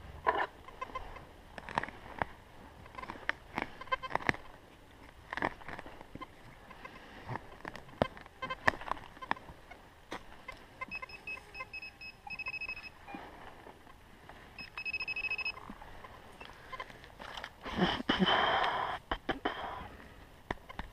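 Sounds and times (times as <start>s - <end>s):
metal detector beeping: 2.9s - 4.3s, 8.0s - 9.4s, 10.4s - 13.4s, 14.6s - 15.7s.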